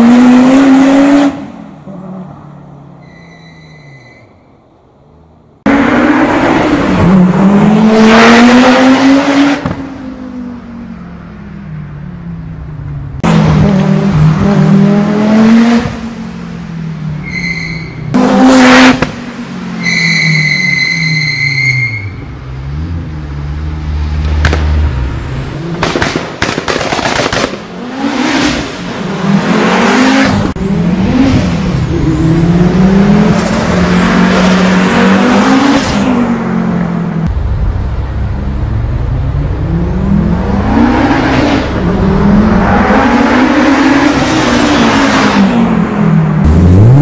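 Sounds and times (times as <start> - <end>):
turbo whistle: 3.0 - 4.3, 19.8 - 22.2
rally car engine accelerating: 5.6 - 10.9, 27.7 - 47.0
exhaust bangs: 24.2 - 29.6, 37.2 - 44.6.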